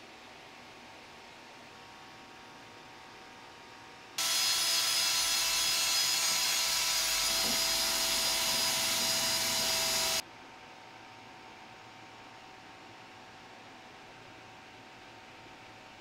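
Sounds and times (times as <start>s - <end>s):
bench grinder wire wheel grinding: 4.2s - 10.2s.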